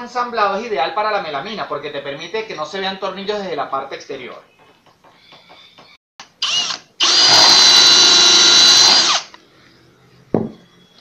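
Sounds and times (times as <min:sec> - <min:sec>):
cordless drill whining: 0:06.2 - 0:09.4.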